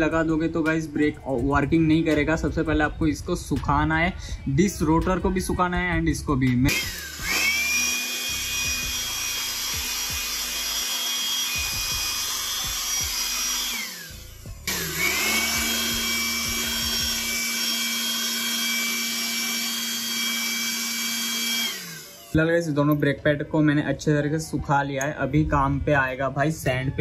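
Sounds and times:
electric blower running: 6.7 - 22.6.

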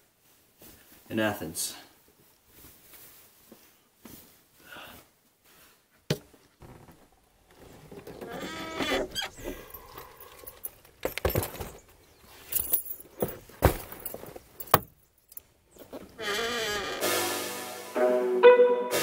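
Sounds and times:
backpack thumps and knocks: 11.0 - 11.9, 12.5 - 15.0.

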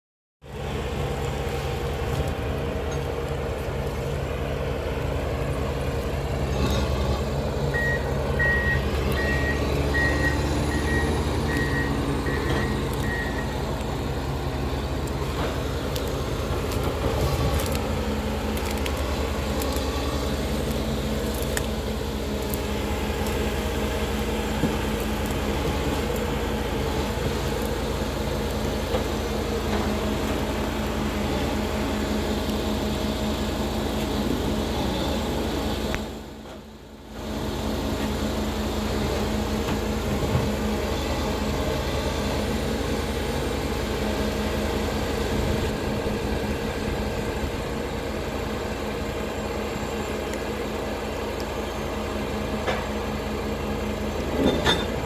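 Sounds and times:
diesel engine running: 0.4 - 55.0
reversing alarm beeps: 7.7 - 13.6.

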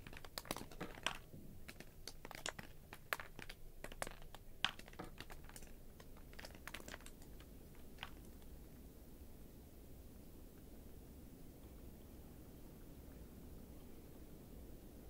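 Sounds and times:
faint sharp clicks and ticks: 0.0 - 8.6
faint steady hiss: 0.0 - 15.0.

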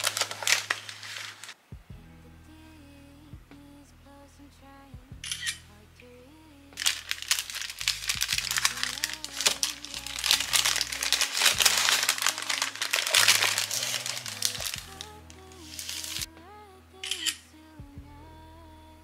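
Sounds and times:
wrapping paper crinkling: 0.0 - 1.6, 6.8 - 16.3
background music: 0.0 - 19.0.

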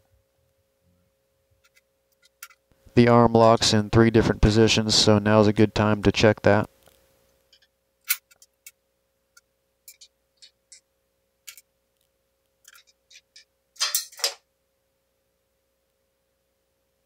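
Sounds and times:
metal clatter: 12.7 - 14.4.

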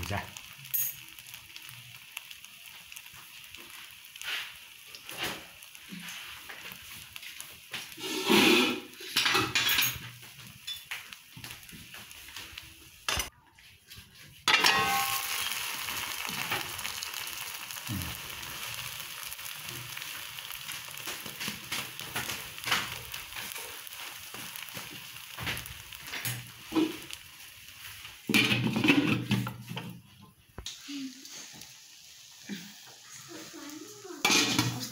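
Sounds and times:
omelet sizzling: 0.0 - 34.9
spatula scraping a pan: 4.2 - 10.9, 27.8 - 30.2, 33.9 - 34.9.

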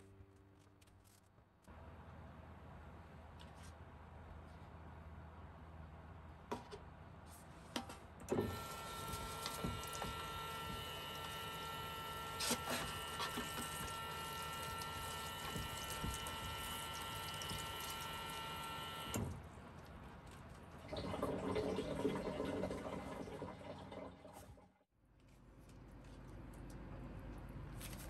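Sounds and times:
electric water pump running: 8.3 - 19.4
water flowing from tap: 8.5 - 19.2, 20.9 - 24.4.

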